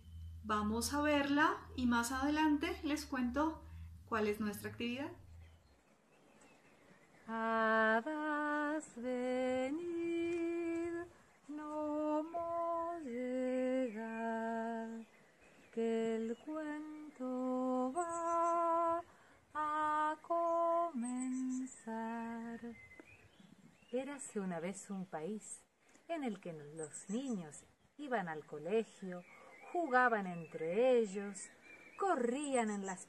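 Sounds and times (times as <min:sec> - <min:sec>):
woman singing slow melody: 0:07.2 - 0:23.1.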